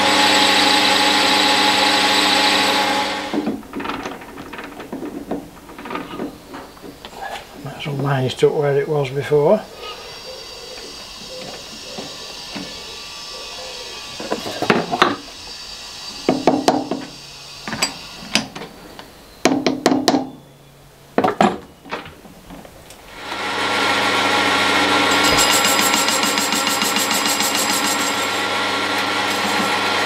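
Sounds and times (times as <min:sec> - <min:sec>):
lathe running: 0:00.0 - 0:05.1, 0:23.1 - 0:30.0.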